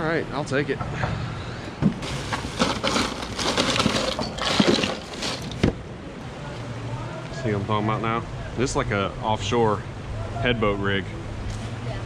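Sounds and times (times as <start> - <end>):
plastic bags crackling: 2.0 - 5.7.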